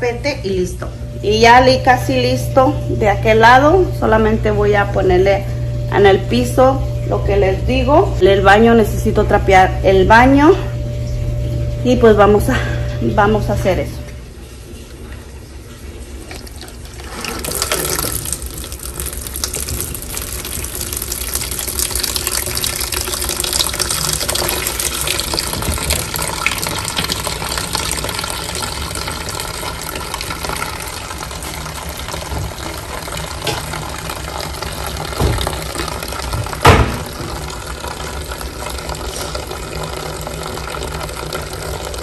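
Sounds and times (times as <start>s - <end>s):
faucet water filling bucket: 1.0s - 42.0s.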